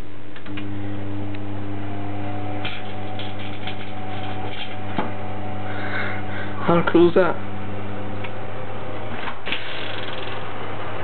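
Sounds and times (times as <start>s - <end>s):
microwave oven humming: 0.2s - 11.0s
sparks crackling and snapping: 2.6s - 5.0s.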